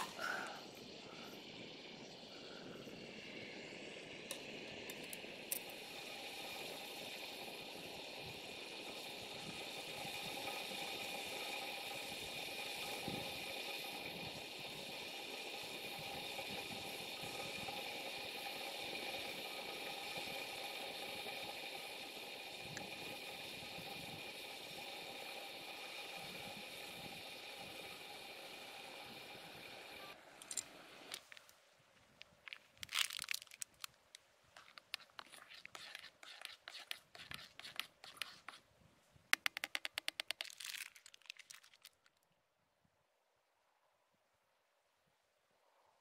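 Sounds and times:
gas stove hissing: 0.0s - 31.4s
sharp clicks: 39.4s - 41.1s.

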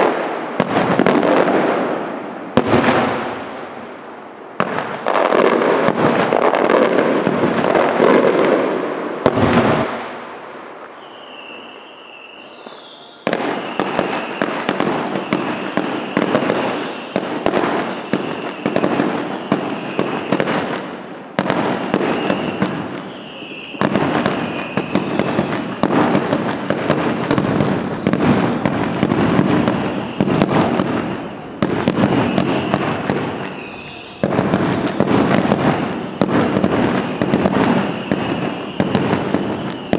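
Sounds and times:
fireworks crackling and bangs: 0.0s - 39.9s
high wavering whistle: 11.0s - 20.5s, 21.8s - 25.8s, 29.7s - 35.1s, 37.0s - 39.9s.

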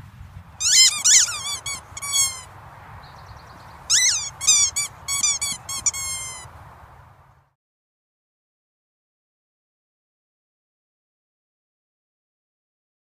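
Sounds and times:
squeaky dog toy squeaking: 0.6s - 2.5s, 3.9s - 6.5s.

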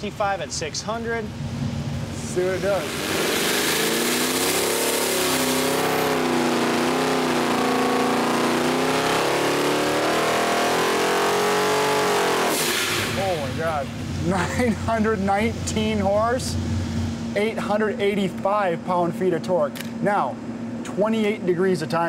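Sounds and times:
supercharged engine at full throttle: 1.2s - 19.2s.

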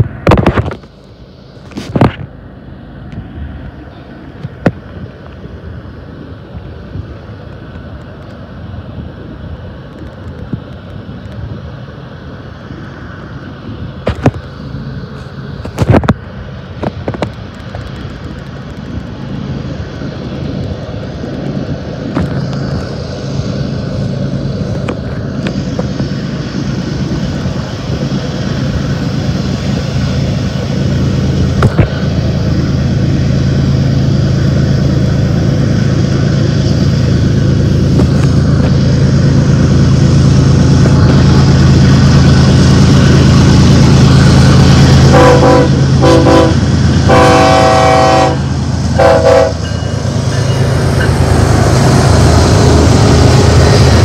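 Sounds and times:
diesel locomotive engine drone: 0.0s - 54.0s
train air horn blasts: 45.1s - 49.7s.

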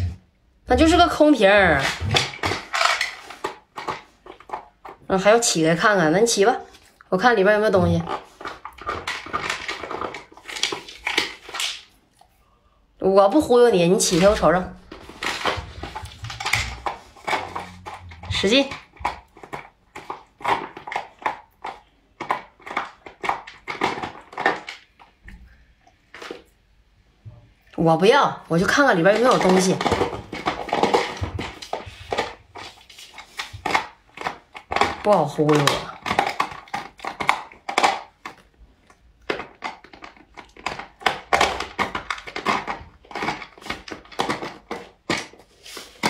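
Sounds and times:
dog chewing plastic bottle: 1.6s - 5.4s, 7.7s - 12.0s, 14.0s - 25.2s, 28.6s - 46.0s.

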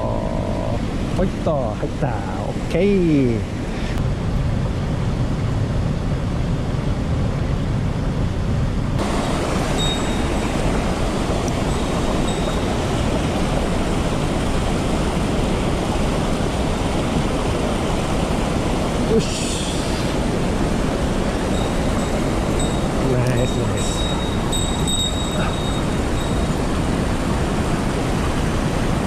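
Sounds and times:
river rushing over rocks: 9.0s - 29.0s
water spilling over weir: 9.0s - 29.0s.

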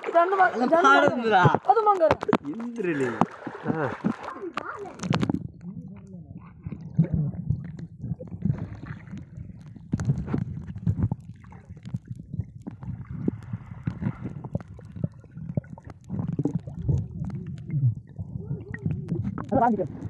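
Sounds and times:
underwater gurgling and bubbling: 0.0s - 20.0s
hiss of bubbles: 12.7s - 20.0s.

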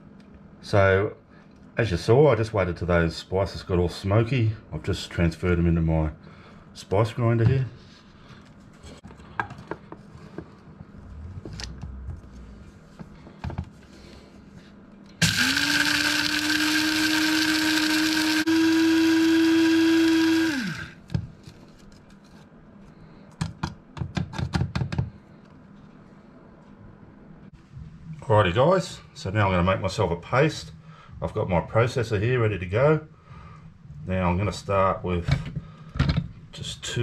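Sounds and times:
electric spice grinder whining: 15.2s - 21.1s.

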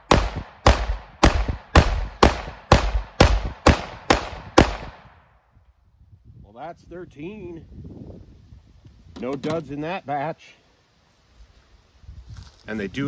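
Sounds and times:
pistol shots with echo: 0.0s - 5.1s.

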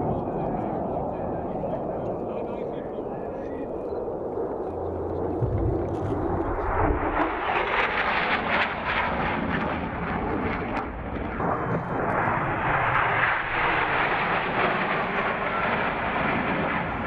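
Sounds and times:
fighter jet flying past: 0.0s - 17.0s.

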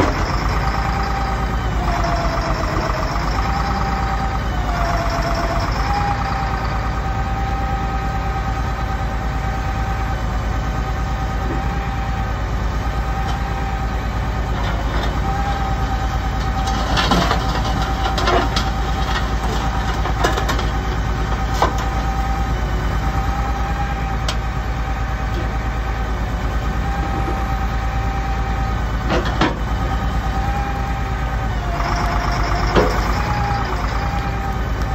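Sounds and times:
hydraulic whine: 0.0s - 10.3s, 20.8s - 34.9s
truck engine running: 0.0s - 34.9s
metal clanks and knocks: 29.1s - 29.7s.

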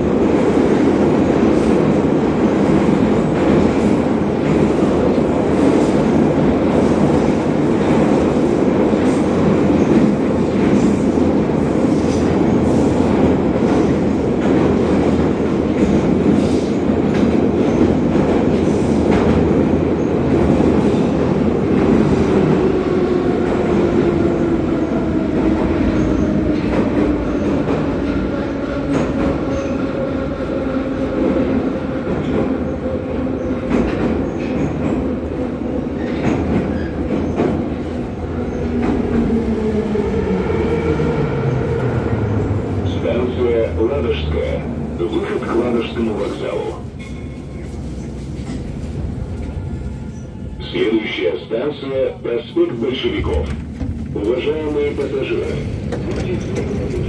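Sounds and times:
train wheels roaring in tunnel: 0.0s - 57.0s
rail joint clicks: 44.0s - 50.4s, 52.4s - 57.0s.

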